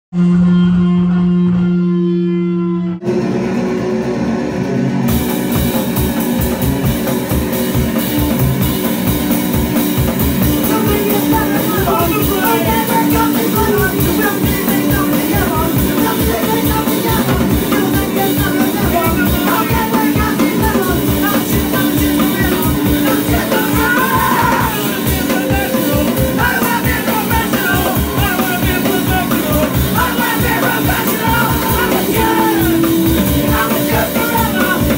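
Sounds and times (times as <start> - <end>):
held low tone: 0.1 - 3.2
electric guitars: 3.0 - 34.9
drum kit beat: 3.1 - 34.9.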